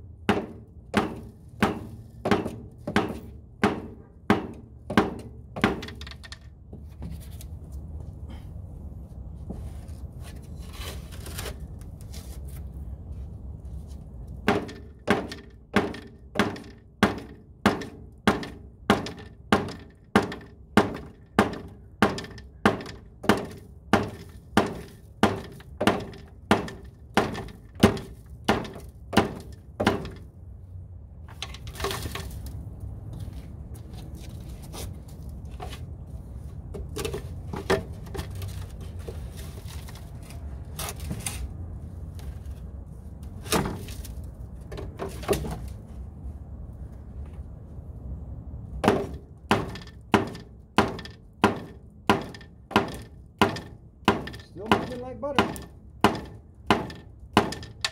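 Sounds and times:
rubber mallet striking plastic pipe: 48.8 - 57.9.

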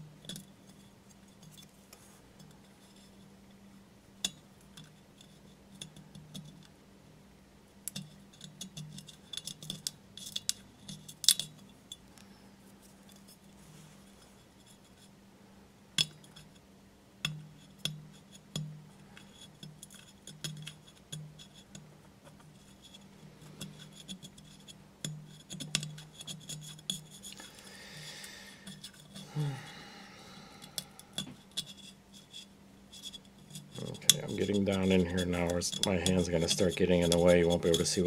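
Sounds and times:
faint low hum: 0.0 - 38.0
razor blade scraping porcelain: 25.3 - 27.4, 30.6 - 38.0.

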